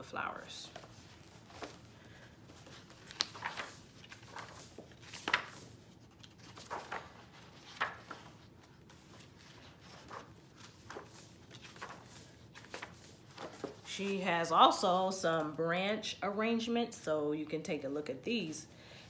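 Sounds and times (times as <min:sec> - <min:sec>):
book pages turning: 0:00.6 - 0:14.2.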